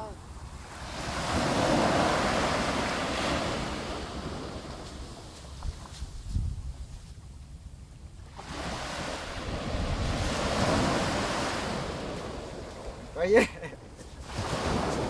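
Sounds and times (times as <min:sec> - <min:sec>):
surf waves washing on beach: 0:00.0 - 0:06.2, 0:08.3 - 0:15.0
wind rumble on microphone: 0:00.0 - 0:13.2, 0:14.1 - 0:15.0.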